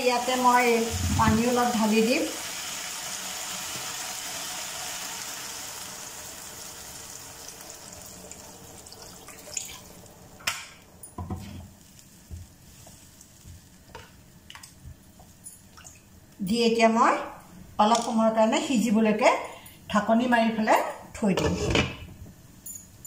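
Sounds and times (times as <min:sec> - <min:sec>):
pan sizzling and hissing: 0:00.0 - 0:15.4.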